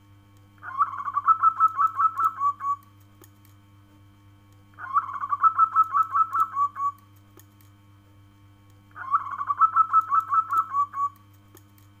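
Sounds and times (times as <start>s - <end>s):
faint steady hum: 0.0s - 12.0s
dove cooing: 0.6s - 2.8s, 4.8s - 7.0s, 9.0s - 11.2s.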